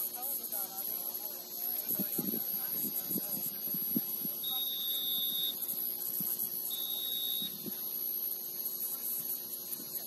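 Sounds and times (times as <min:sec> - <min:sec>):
constant high hiss: 0:00.0 - 0:10.0
referee's whistle blasts: 0:04.4 - 0:05.6, 0:06.7 - 0:07.6.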